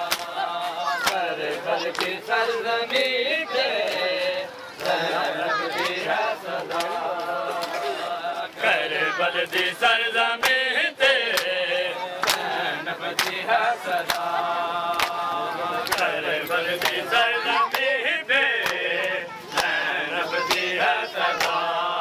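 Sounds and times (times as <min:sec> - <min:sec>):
hands slapping bare chests: 0:00.0 - 0:00.4, 0:01.0 - 0:02.2, 0:06.7 - 0:07.0, 0:11.3 - 0:11.6, 0:12.2 - 0:12.5, 0:13.1 - 0:13.4, 0:14.0 - 0:14.3, 0:15.0 - 0:15.2, 0:15.8 - 0:16.1, 0:21.4 - 0:21.6
men chanting a lament: 0:00.0 - 0:22.0.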